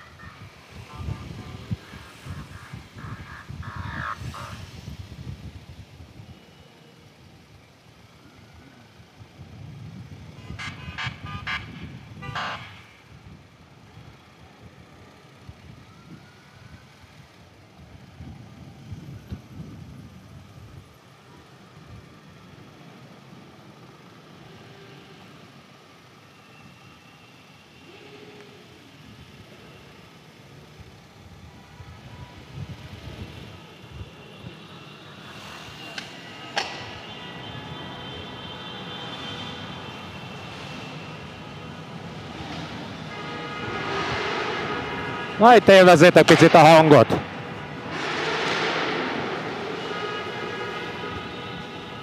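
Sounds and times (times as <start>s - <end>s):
motorcycle rumble: 0.0s - 6.3s
motorcycle engine and road noise: 0.0s - 52.0s
vehicle horn beeping: 0.8s - 3.2s, 10.4s - 13.0s, 34.2s - 41.4s, 43.0s - 48.6s, 49.4s - 52.0s.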